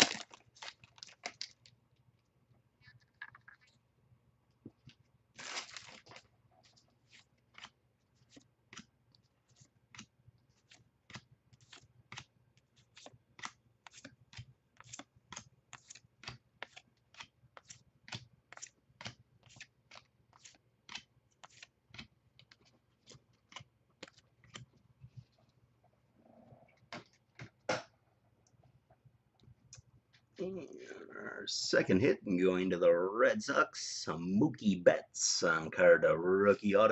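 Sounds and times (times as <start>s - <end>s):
cards rustling: 4.8s - 25.3s.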